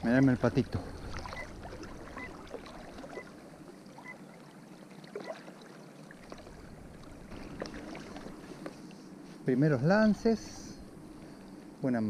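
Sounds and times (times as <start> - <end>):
river water lapping and trickling: 0.0 - 12.0
faint bird chirps: 3.9 - 4.3.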